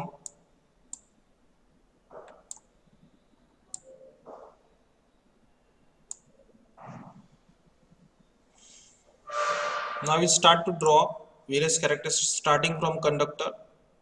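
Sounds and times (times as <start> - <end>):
computer mouse clicks: 0.2 - 1.2, 2.1 - 2.7, 3.7 - 4.6, 6.1 - 6.3.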